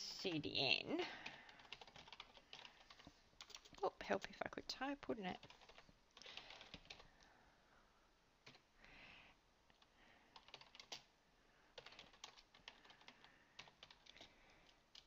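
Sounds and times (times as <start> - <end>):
faint keyboard typing: 1.1 - 7.3, 8.4 - 8.7, 9.7 - 11.1, 11.7 - 15.0.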